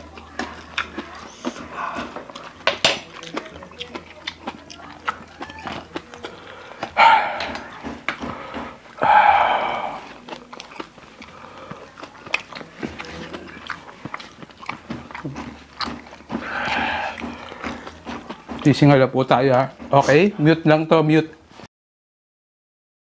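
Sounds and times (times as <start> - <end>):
lip smacks and chewing clicks: 0.0 - 18.9
breathy open-mouth exhales: 8.2 - 10.1, 16.4 - 17.8.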